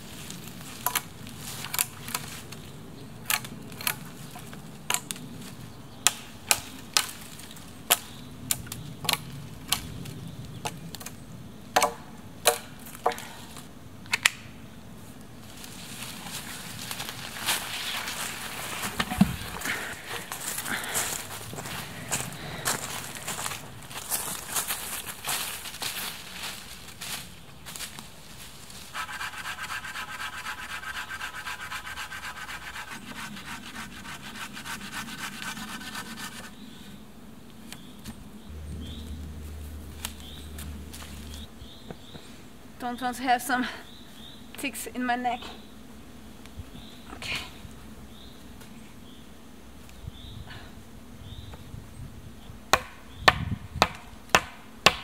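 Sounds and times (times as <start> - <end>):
knife chopping wooden pole: 11.8 - 13.2, 52.7 - 55.0
knife scraping wooden pole: 28.9 - 36.5.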